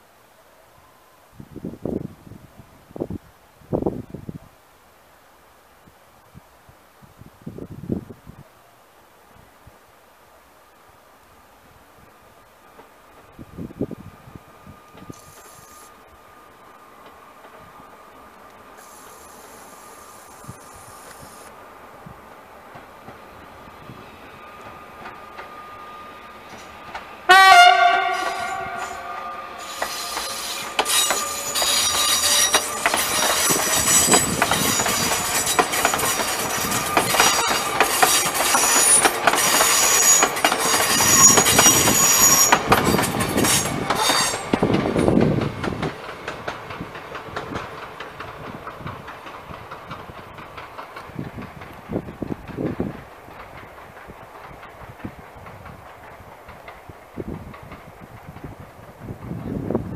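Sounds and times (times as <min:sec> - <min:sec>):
train wheels clicking over rail joints: 0:22.6 - 0:59.9
train horn blast: 0:27.2 - 0:32.6
wheel squeal: 0:28.1 - 0:44.6.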